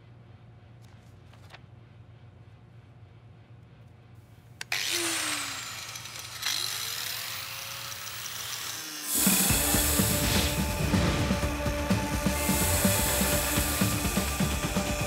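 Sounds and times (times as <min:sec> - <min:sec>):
power tool motor whining: 0:04.7 - 0:15.0.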